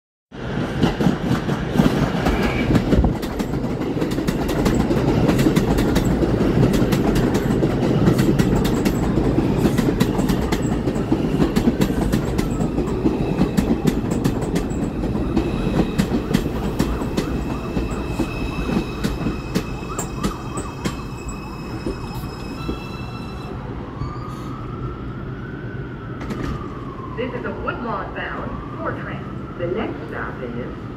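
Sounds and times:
train wheels rumbling on rail: 0.4s - 23.5s, 26.2s - 27.1s.

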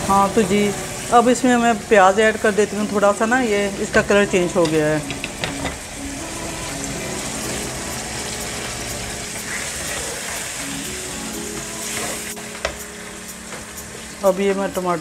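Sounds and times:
meat and onions sizzling in oil: 0.0s - 15.0s
soft background music: 0.0s - 15.0s.

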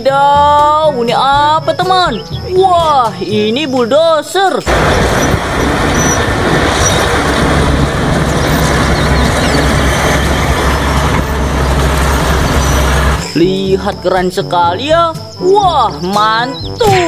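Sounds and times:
bulldozer engine rumbling: 4.7s - 14.4s.

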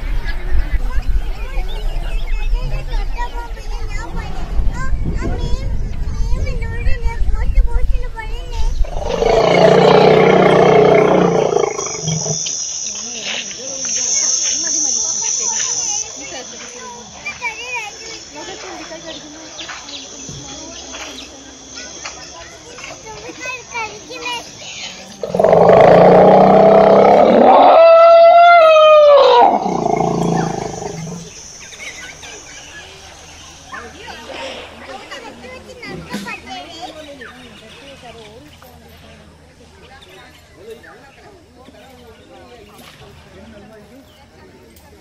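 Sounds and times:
elephant roaring: 8.8s - 12.4s, 25.2s - 31.3s.

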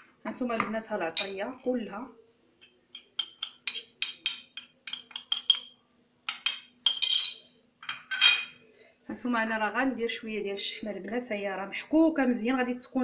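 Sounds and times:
metal spoon clinking on plate: 2.6s - 8.6s.

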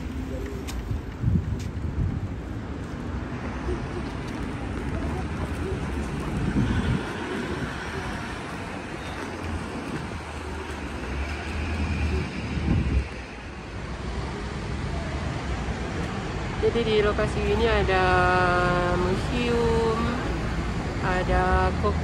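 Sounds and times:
wind buffeting microphone: 0.0s - 13.8s
low rumble of traffic: 0.0s - 22.0s.

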